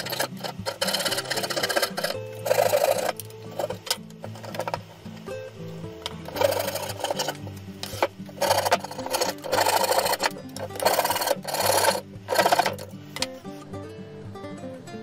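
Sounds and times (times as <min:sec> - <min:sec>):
hand file scraping wood: 0:00.0 - 0:04.9, 0:06.3 - 0:12.9
background music: 0:00.0 - 0:15.0.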